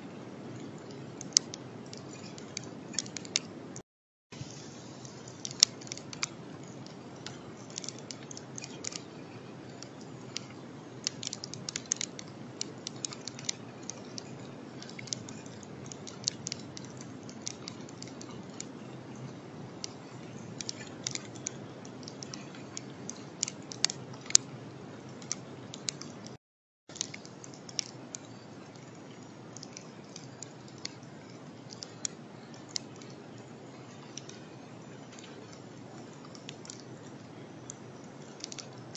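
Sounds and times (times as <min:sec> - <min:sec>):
sharp ticks and clicks: 0:00.5 - 0:03.6, 0:04.4 - 0:38.9
microphone hiss: 0:04.4 - 0:26.4.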